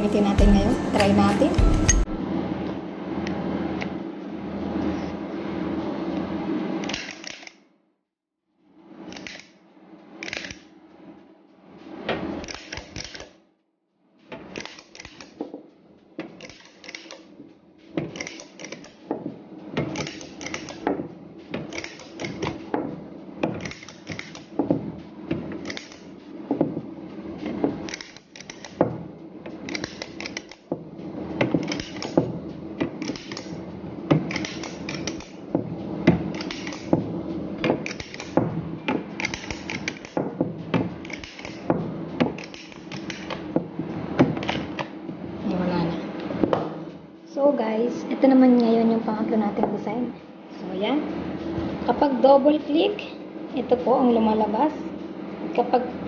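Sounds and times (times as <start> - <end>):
steady low hum: 0.0 - 7.0, 14.0 - 56.0
cookie press clicking: 21.6 - 24.6, 29.5 - 30.7, 31.4 - 35.5, 36.1 - 37.0, 37.6 - 43.5.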